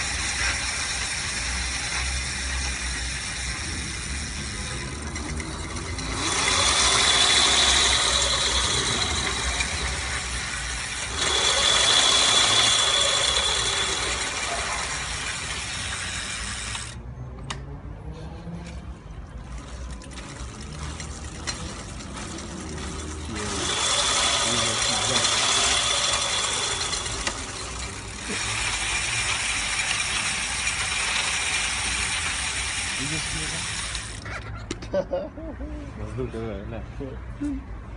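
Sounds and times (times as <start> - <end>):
electric motor whining: 0.0 - 17.0, 21.6 - 34.2
wheel coasting with ratchet ticking: 0.0 - 17.6, 19.5 - 34.8.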